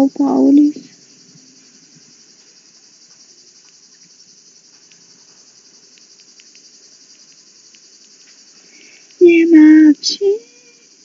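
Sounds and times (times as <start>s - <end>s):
insects chirping: 0.0s - 11.0s
faint ticks: 2.0s - 9.2s.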